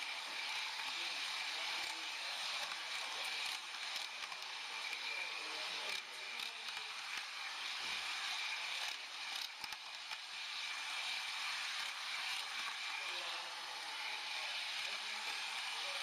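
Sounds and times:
model train rushing rattle: 0.0 - 16.0.

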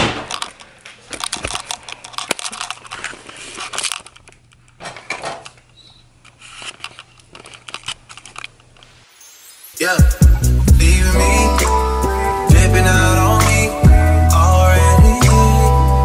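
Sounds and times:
plastic crinkling: 0.2 - 4.5.

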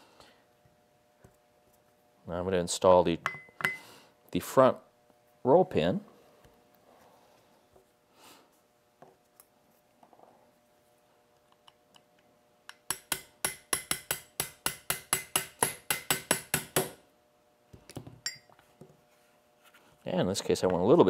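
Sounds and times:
hammer tapping metal punch: 12.7 - 17.0.

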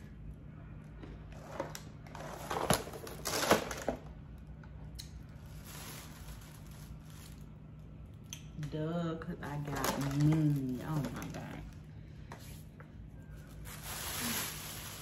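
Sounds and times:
plastic packaging crinkling: 2.2 - 4.0, 5.3 - 7.8, 9.6 - 11.8, 13.3 - 15.0.

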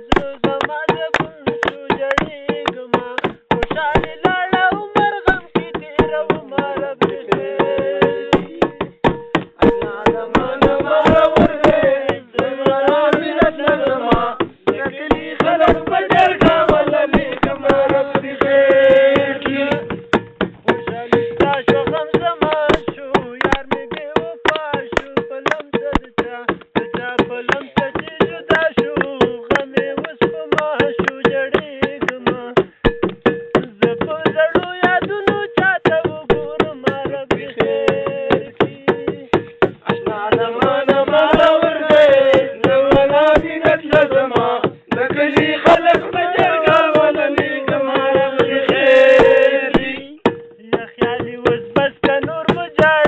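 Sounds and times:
person singing: 0.0 - 9.0, 9.6 - 20.0, 20.6 - 53.0
fast clicking beat: 0.0 - 53.0
held tone: 48.7 - 50.6.

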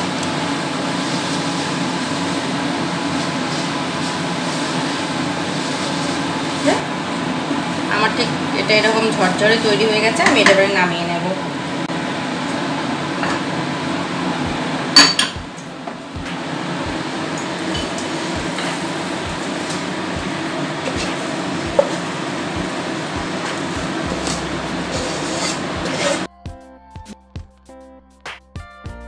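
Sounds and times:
spatula scraping a pan: 23.4 - 26.3.

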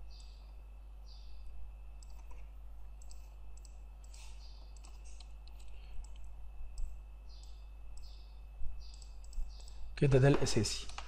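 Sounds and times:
low electrical hum: 0.0 - 11.0
computer mouse clicking: 2.0 - 2.4, 3.0 - 8.2, 8.8 - 9.8.

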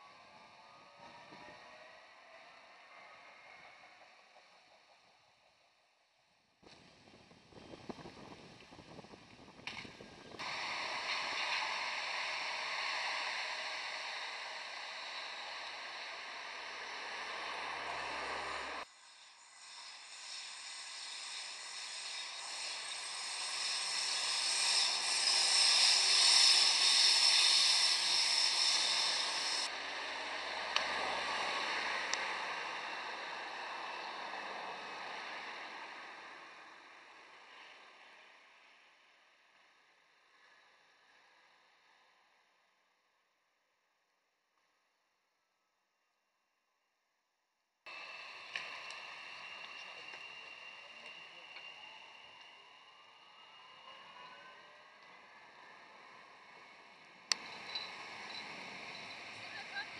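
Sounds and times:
tram wheels rolling on rails: 1.0 - 38.8, 47.9 - 59.9.

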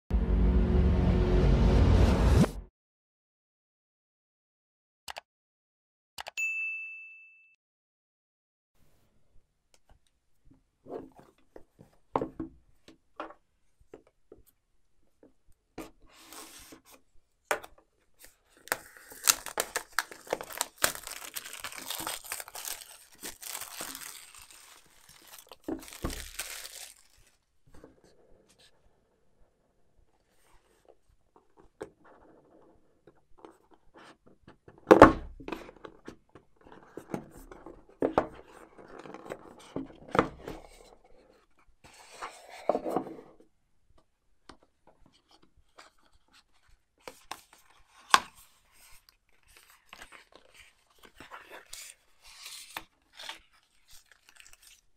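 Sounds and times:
plastic wrap tearing and crinkling: 18.6 - 27.4, 51.7 - 54.9.

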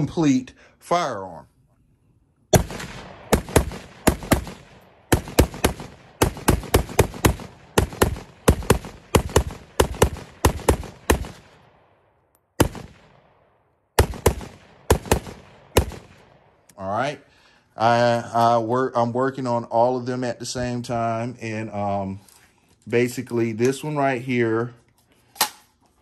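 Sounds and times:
pistol gunshots with ringing echo: 2.5 - 16.7.

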